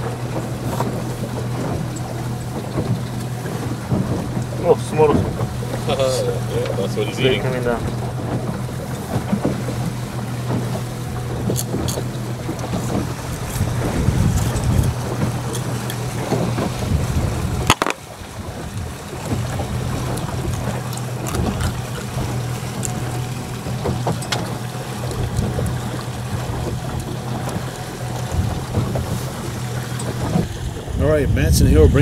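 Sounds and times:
boat engine humming: 0.0s - 32.0s
water noise: 0.0s - 32.0s
wind: 0.0s - 32.0s
sharp knock: 17.7s - 18.0s.

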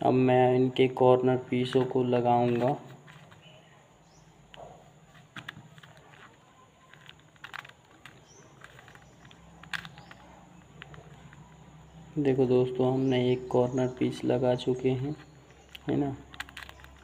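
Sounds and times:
puzzle cube clicking: 1.6s - 3.6s, 4.3s - 12.1s, 15.0s - 17.0s.

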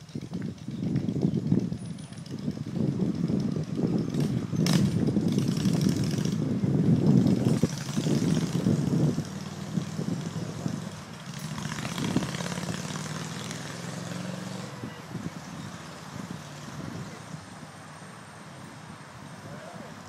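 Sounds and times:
moped engine running: 0.0s - 17.6s.

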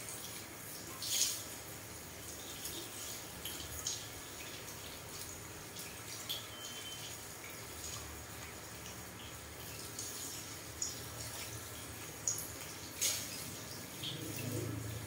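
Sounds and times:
water splashes: 0.0s - 15.0s
water spraying from hand sprayer: 9.9s - 15.0s.

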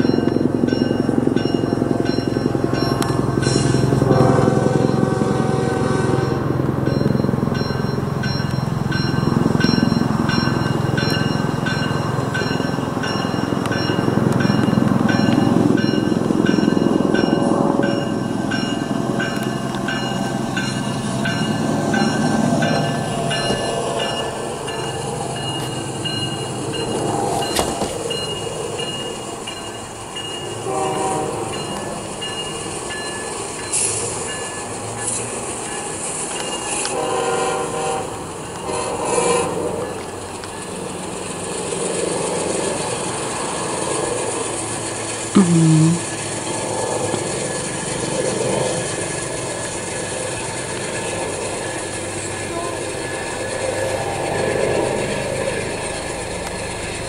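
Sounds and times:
helicopter passing overhead: 0.0s - 30.6s, 38.2s - 57.0s.

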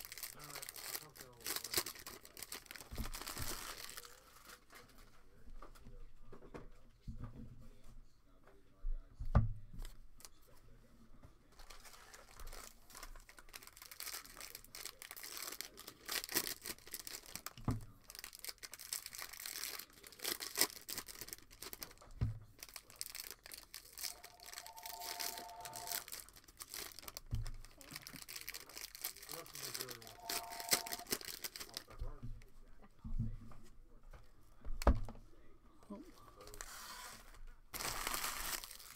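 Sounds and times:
foil wrappers crinkling and tearing: 0.0s - 5.0s, 11.6s - 32.0s, 37.7s - 38.9s.

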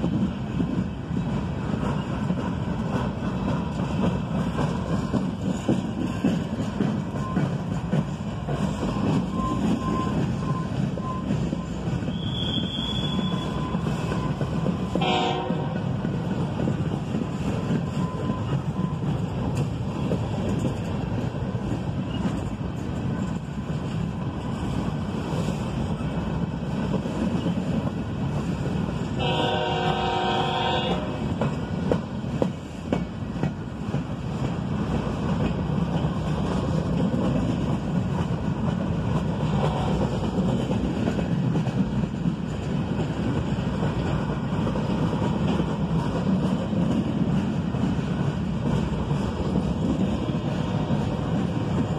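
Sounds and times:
train wheels rolling on rails: 0.0s - 51.9s
train horn blast: 15.0s - 15.8s, 29.2s - 31.3s, 39.6s - 40.1s.

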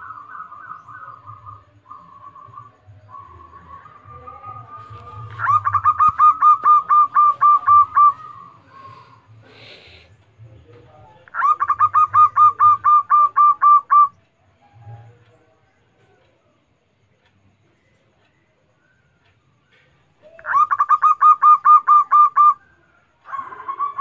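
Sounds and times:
dove cooing: 0.0s - 9.3s, 11.3s - 14.2s, 19.7s - 24.0s.

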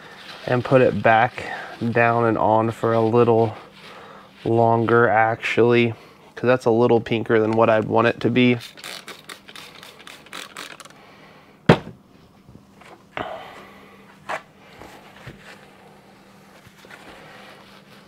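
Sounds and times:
paper towel rubbing: 0.0s - 6.1s, 14.7s - 18.0s
faint steady hum: 0.0s - 18.0s.

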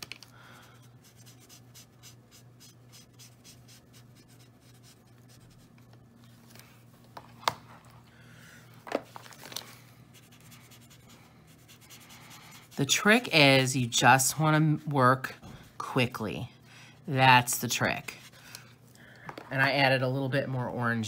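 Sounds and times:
marker rubbing over paper: 0.9s - 5.8s, 10.2s - 13.3s.

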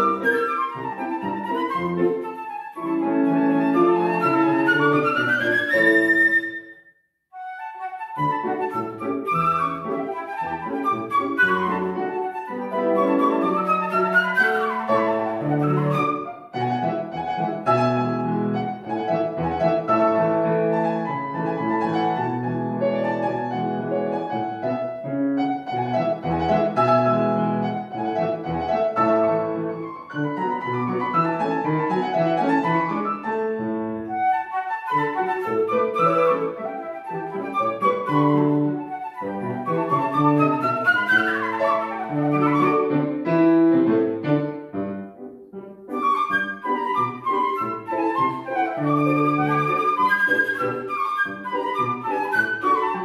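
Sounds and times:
flute runs: 0.0s - 6.8s, 7.4s - 20.3s, 34.1s - 43.1s, 45.9s - 53.0s
grand piano: 0.0s - 6.8s, 7.4s - 53.0s.

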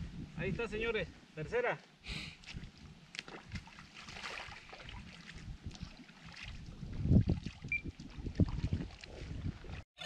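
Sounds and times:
wind buffeting microphone: 0.0s - 1.3s, 2.4s - 9.9s
water sloshing and splashing: 2.4s - 9.9s.

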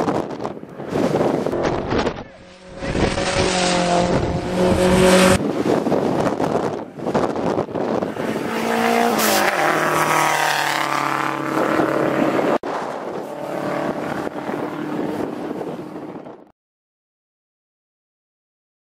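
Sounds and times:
race car engine revving: 0.9s - 5.9s, 7.1s - 16.1s.

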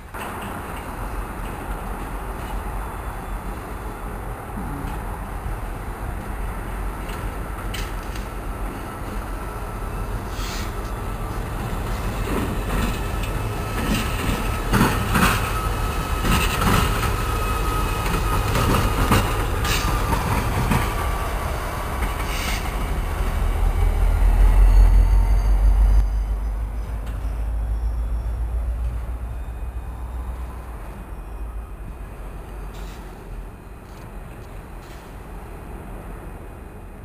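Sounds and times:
diesel locomotive rumbling: 0.0s - 37.0s
wheels clicking over rail joints: 7.0s - 9.3s, 10.3s - 21.1s.

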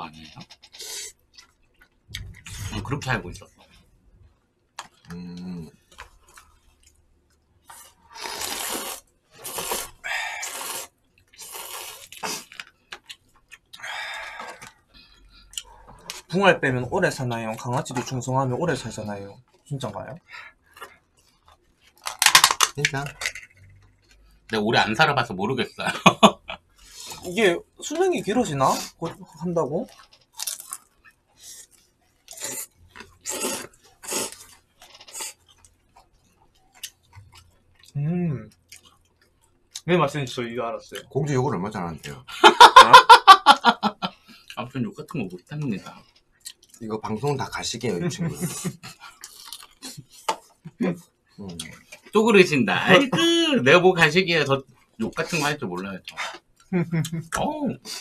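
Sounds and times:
crunchy chewing of fried food: 0.2s - 4.0s, 4.7s - 16.3s, 19.4s - 22.4s, 23.4s - 24.6s, 28.8s - 39.9s, 45.6s - 52.2s, 54.6s - 55.3s
noodles being slurped: 7.6s - 14.8s, 29.8s - 35.7s.

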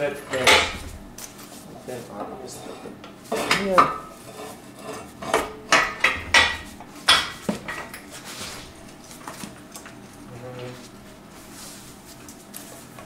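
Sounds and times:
sharp metallic clanks: 0.3s - 1.2s.

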